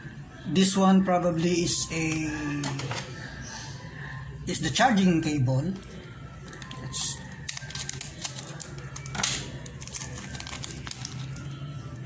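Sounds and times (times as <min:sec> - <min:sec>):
plastic bag crinkling: 0:06.4 - 0:11.6
scissors snipping plastic bag: 0:07.4 - 0:11.4.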